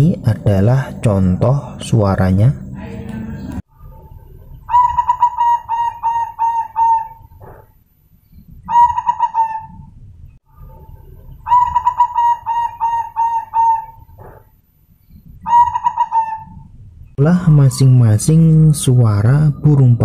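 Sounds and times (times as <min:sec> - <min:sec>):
dove cooing: 0:04.0 - 0:07.7, 0:08.6 - 0:09.9, 0:11.0 - 0:14.4, 0:15.4 - 0:16.7.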